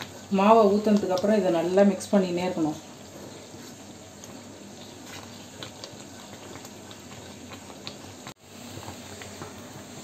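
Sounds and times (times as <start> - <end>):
batter bubbling and crackling: 0.0 - 10.0.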